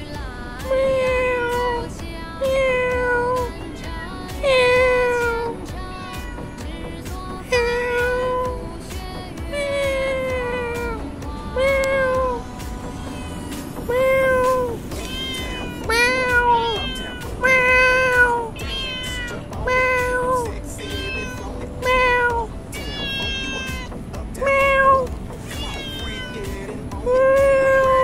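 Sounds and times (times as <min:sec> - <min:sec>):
cat meowing: 0:00.6 - 0:08.6, 0:09.5 - 0:28.0.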